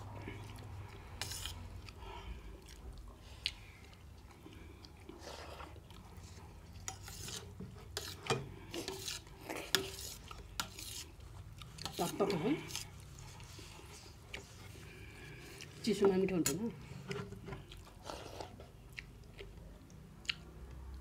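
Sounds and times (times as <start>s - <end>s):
metal spoon scraping steel plate: 6.8s - 11.2s.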